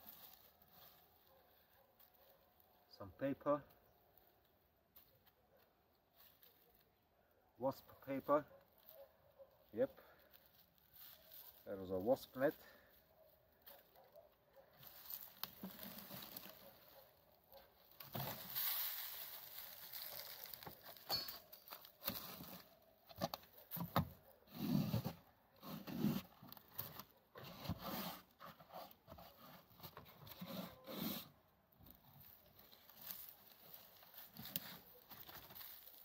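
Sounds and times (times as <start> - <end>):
dry rustling and scraping: 0.0 - 2.4, 9.7 - 12.5, 14.8 - 22.8, 31.9 - 36.0.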